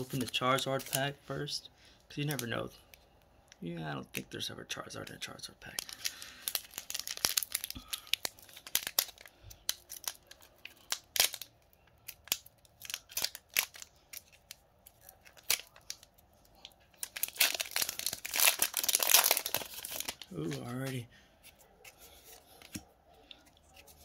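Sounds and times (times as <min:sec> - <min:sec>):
foil wrapper crinkling: 0:00.0 - 0:01.2, 0:05.6 - 0:21.0
foil pack tearing: 0:05.8 - 0:11.5, 0:17.0 - 0:20.9.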